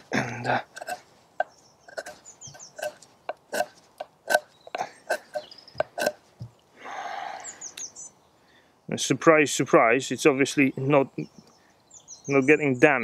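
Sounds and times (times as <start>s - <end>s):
knife scraping wood: 0.0s - 6.5s
faint birds chirping: 0.0s - 13.0s.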